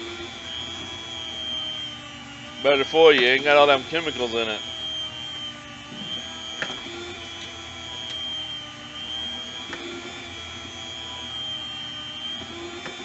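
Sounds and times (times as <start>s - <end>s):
electric meat slicer whining: 0.0s - 13.0s
clicks: 7.4s - 8.3s.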